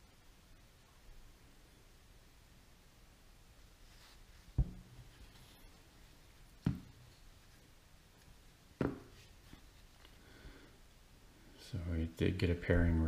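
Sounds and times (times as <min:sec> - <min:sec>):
dull thumps: 0:04.5 - 0:05.2, 0:06.6 - 0:07.0, 0:08.8 - 0:09.2.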